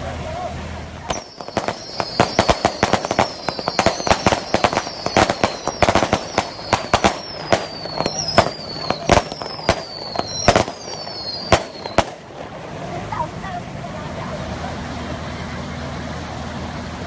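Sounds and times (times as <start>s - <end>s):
high descending whistles: 1.1s - 12.2s.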